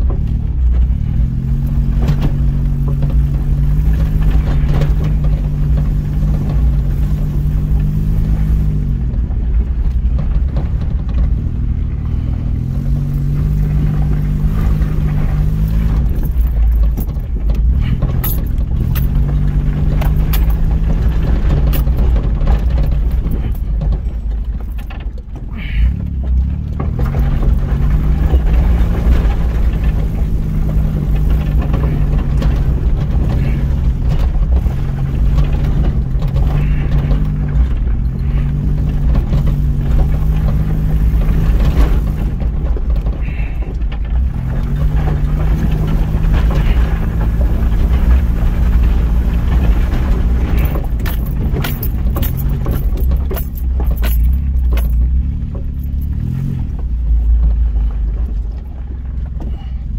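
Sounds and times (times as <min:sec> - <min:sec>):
engine hum: 0:00.0 - 0:59.9
tyres on gravel rumbling: 0:00.0 - 0:59.9
rattling clicks: 0:12.2 - 0:59.5.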